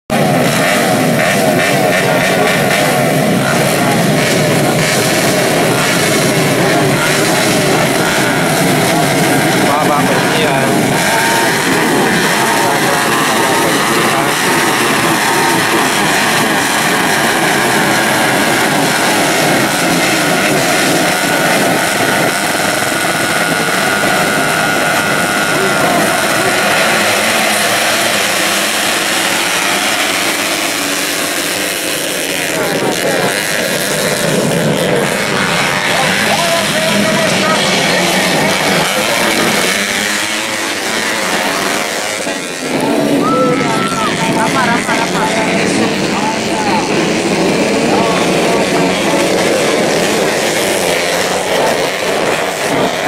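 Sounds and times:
motorcycle engines running: 0:00.0 - 0:53.0.

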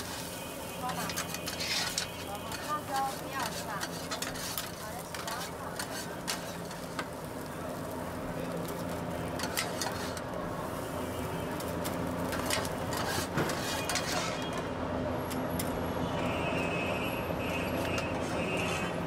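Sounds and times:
utensils clicking and tapping: 0:00.8 - 0:07.2.

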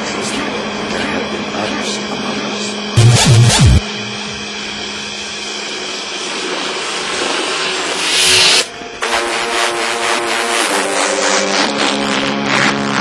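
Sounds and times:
music with a beat: 0:03.0 - 0:03.8
low hum: 0:03.0 - 0:04.9.

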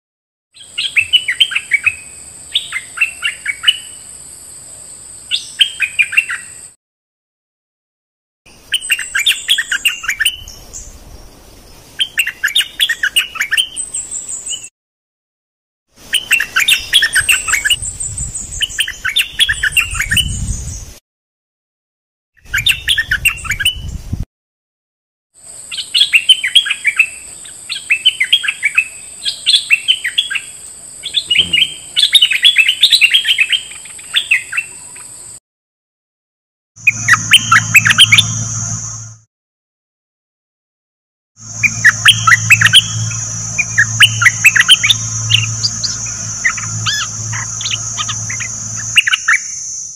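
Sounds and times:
bulbuls singing: 0:00.6 - 0:04.1, 0:08.5 - 0:11.2, 0:16.1 - 0:20.5, 0:25.7 - 0:35.4, 0:41.4 - 0:49.9
steady high-pitched tone: 0:36.8 - 0:39.3, 0:41.4 - 0:49.9.

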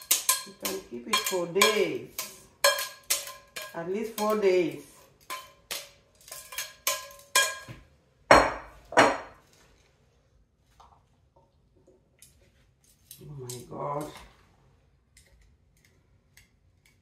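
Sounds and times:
utensils clicking on plate: 0:00.0 - 0:04.5, 0:05.2 - 0:07.7.

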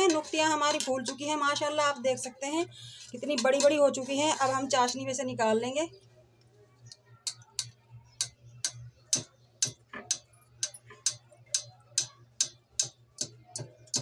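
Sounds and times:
low steady hum: 0:00.0 - 0:14.0
sharp ticks: 0:06.9 - 0:14.0.

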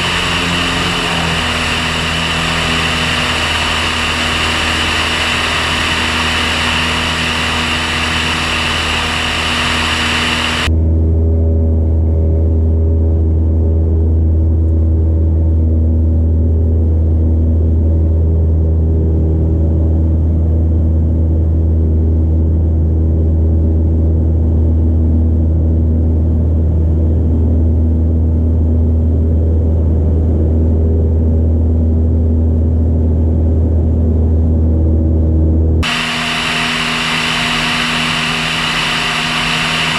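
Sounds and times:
rushing airflow: 0:00.0 - 0:10.7, 0:35.8 - 0:39.9
propeller engine running: 0:00.0 - 0:22.4, 0:34.9 - 0:39.9.

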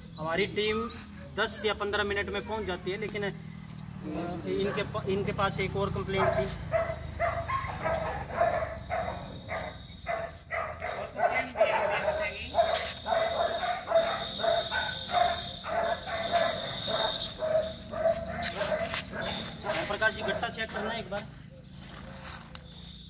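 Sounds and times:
dog barking: 0:04.6 - 0:05.1, 0:06.1 - 0:21.0, 0:21.9 - 0:22.5.

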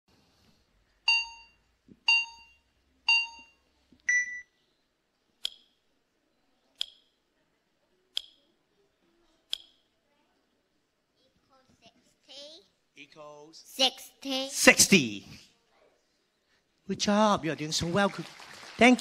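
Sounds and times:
electronic beeps: 0:01.1 - 0:04.6.

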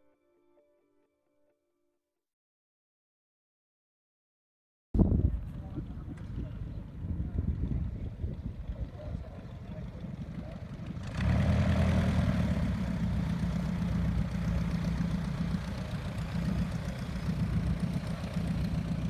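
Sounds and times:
light aircraft engine running: 0:05.0 - 0:19.0.

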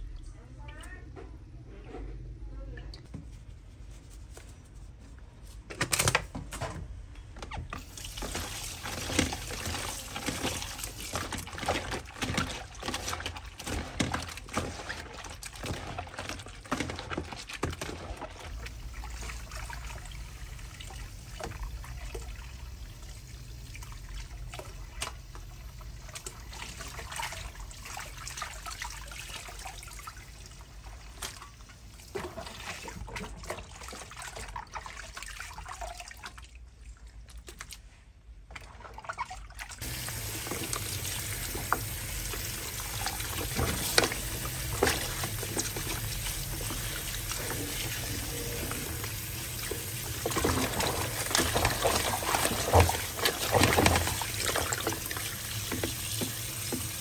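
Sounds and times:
tap water pouring into bowl: 0:39.8 - 0:57.0.

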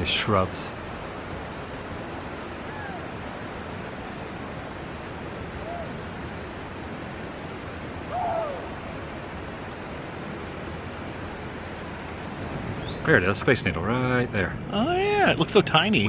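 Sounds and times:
insects and crickets hissing: 0:00.0 - 0:16.0
short falling calls: 0:05.3 - 0:06.7, 0:07.7 - 0:13.1.

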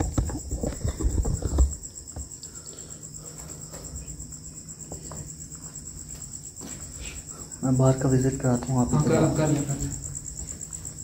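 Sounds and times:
low thumps and rustles: 0:00.0 - 0:02.4
crickets chirping: 0:00.0 - 0:11.0.

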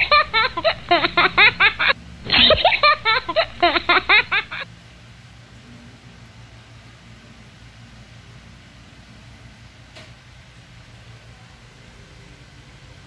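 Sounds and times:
giggling laughter: 0:00.0 - 0:04.6.

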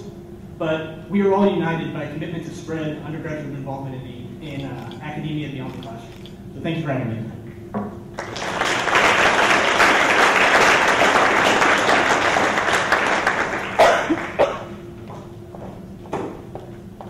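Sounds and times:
audience applauding: 0:08.2 - 0:14.4.

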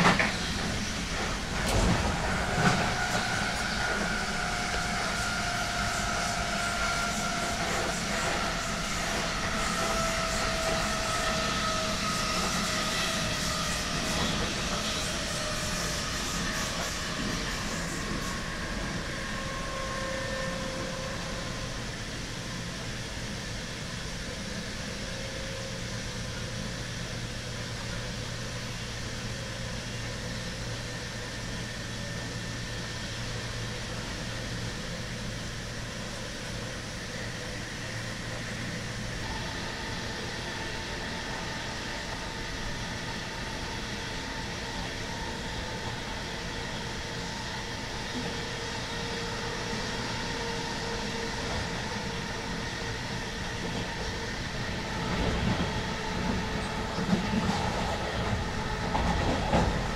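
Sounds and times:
train running noise: 0:00.0 - 0:59.9.

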